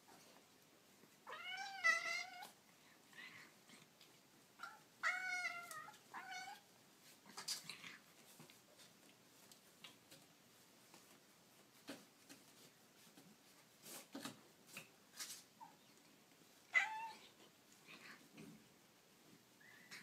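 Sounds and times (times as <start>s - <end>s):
faint rustles: 5.5s - 20.0s.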